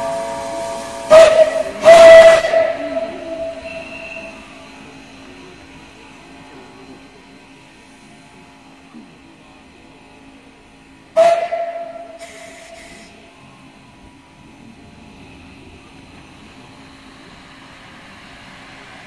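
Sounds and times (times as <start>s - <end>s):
steam locomotive whistle: 0.0s - 4.8s, 11.1s - 13.2s
steam hissing: 0.0s - 7.2s, 11.2s - 13.6s, 14.9s - 19.0s.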